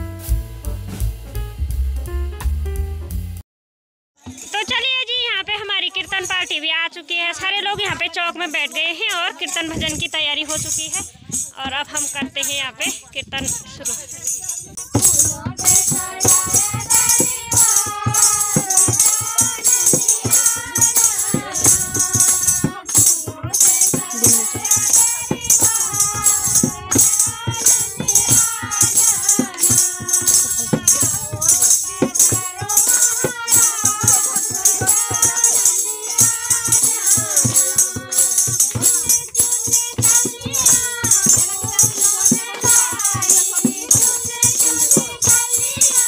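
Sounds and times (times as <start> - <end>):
women singing together: 4.6 - 46.0
jingling rattle: 8.6 - 46.0
hand drum beat: 9.2 - 46.0
hand-clapping: 15.0 - 46.0.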